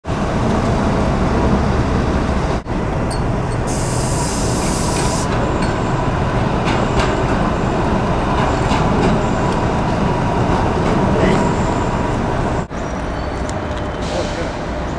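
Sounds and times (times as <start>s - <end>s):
street traffic: 0.0s - 14.9s
tram rolling past: 0.0s - 14.9s
short high hiss: 3.7s - 5.3s.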